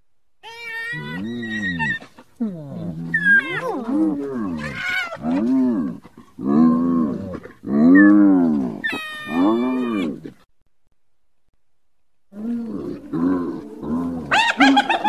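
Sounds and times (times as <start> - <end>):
hyenas calling: 0.4 - 6.0, 6.6 - 10.4, 12.4 - 15.0.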